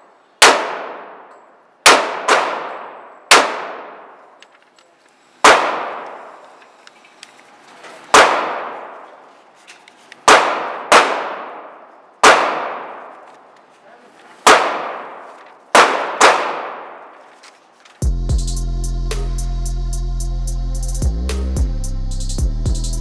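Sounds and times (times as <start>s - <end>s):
gunshots with echo: 0.4s - 4.3s, 5.4s - 6.4s, 8.1s - 9.1s, 10.2s - 13.2s, 14.4s - 17.1s
music: 18.0s - 23.0s.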